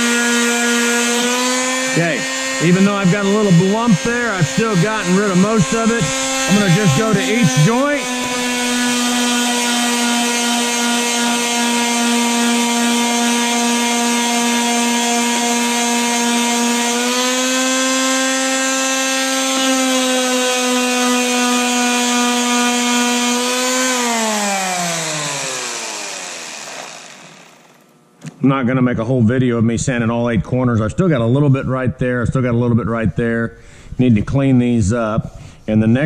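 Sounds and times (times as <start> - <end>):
electric sander running: 0.0 - 27.9.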